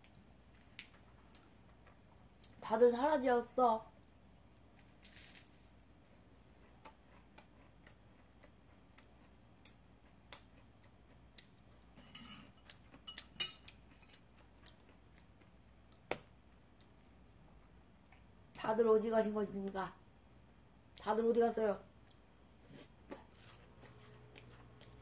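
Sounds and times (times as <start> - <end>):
chewing crackles: 6.2 - 16.0, 22.0 - 25.0.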